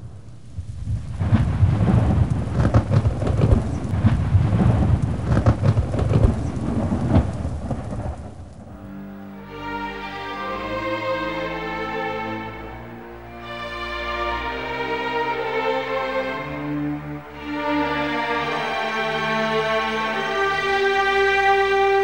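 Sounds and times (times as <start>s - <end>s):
thunder rumbling: 0.0s - 9.2s
heavy rain: 0.0s - 22.0s
string music: 8.5s - 22.0s.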